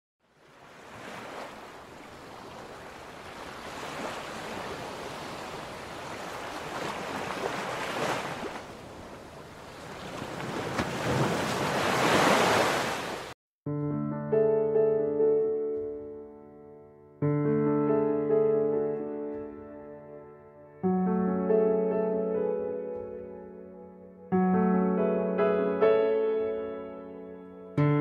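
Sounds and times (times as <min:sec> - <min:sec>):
ocean waves rolling in: 0:00.2 - 0:13.4
soft electric piano music: 0:13.7 - 0:28.0.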